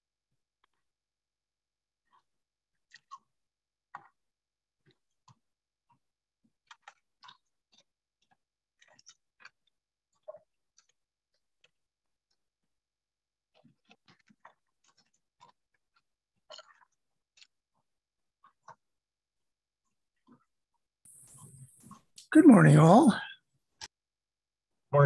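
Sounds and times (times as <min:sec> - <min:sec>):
person eating clicks and crunches: 0:16.5 - 0:17.5.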